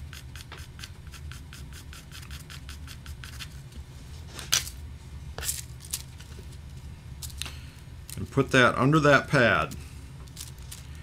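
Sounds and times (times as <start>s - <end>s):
pencil scribbling on thin paper: 0.0s - 3.6s.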